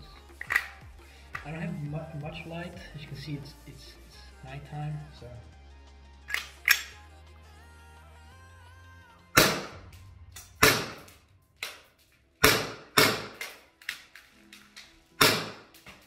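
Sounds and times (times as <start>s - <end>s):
airsoft pistol shots: 9.4s - 11.8s, 12.4s - 13.6s, 15.2s - 15.7s.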